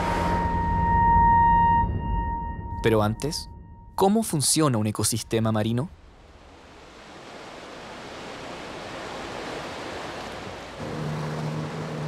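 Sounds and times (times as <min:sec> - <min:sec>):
sea water lapping: 0:06.0 - 0:12.0.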